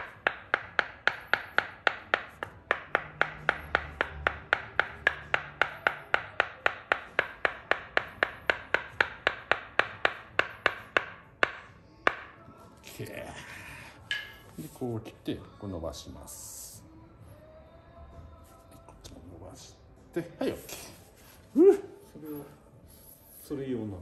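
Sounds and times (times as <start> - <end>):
wooden mallet knocking wood: 0.0 - 12.4, 14.1 - 14.5.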